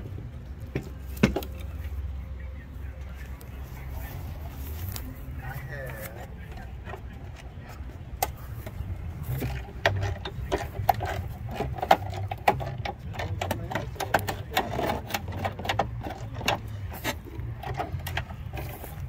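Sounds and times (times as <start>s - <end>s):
hand tools tapping on metal: 4.8s - 19.0s.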